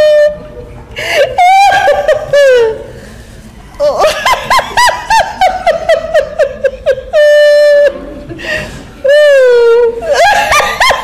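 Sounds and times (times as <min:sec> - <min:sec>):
woman laughing: 0:01.1 - 0:02.9, 0:03.8 - 0:08.2, 0:09.1 - 0:11.0
woman squealing: 0:03.8 - 0:04.2.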